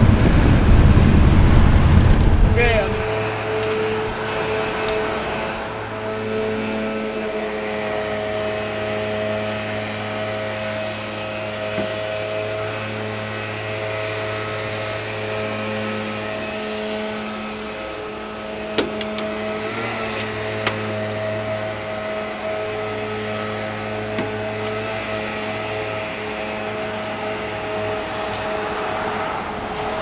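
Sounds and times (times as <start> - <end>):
car engine idling: 0.0 - 3.2.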